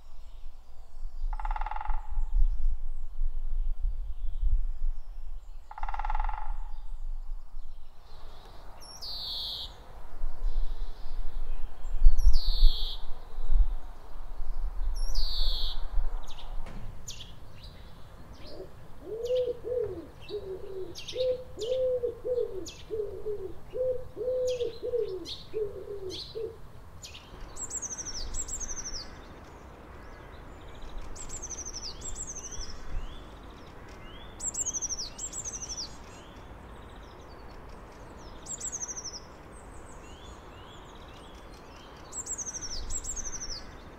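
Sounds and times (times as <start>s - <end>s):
woodpecker sharp calls: 1.3s - 2.2s, 5.7s - 6.8s
wood pigeon cooing: 18.5s - 26.6s
small birds chirping: 24.4s - 43.9s.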